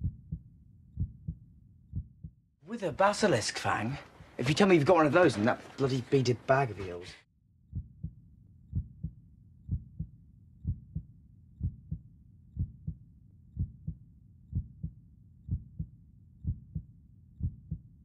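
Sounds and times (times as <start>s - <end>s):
human heartbeat: 0.0s - 2.4s, 7.7s - 13.0s, 13.6s - 17.9s.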